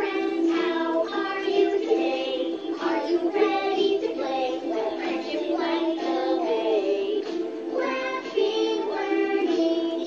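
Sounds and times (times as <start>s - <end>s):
electronic toys playing children's song: 0.0s - 10.0s.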